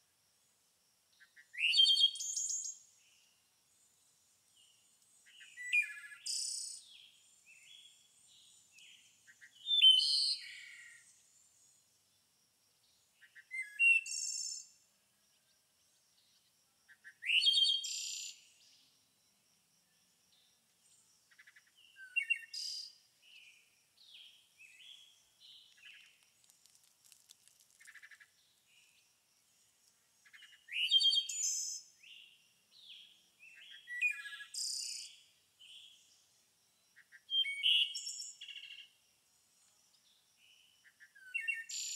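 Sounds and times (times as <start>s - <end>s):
soft bird chirps: 1.2s - 11.9s, 12.9s - 15.5s, 19.9s - 36.3s, 37.0s - 39.0s, 39.6s - 41.9s
songbird twittering: 5.2s - 11.2s, 21.3s - 26.2s, 30.2s - 36.1s, 37.0s - 38.9s.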